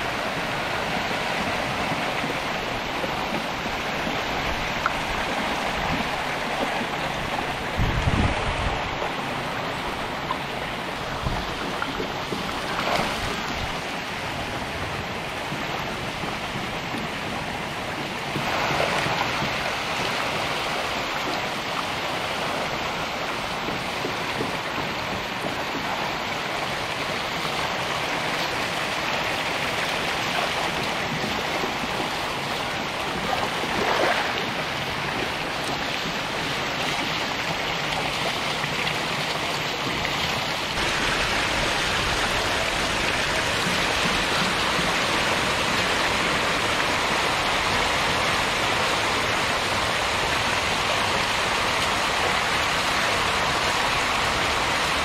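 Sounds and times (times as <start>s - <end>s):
fish splashing and churning water: 0.0s - 55.0s
water pouring from pipe: 18.3s - 55.0s.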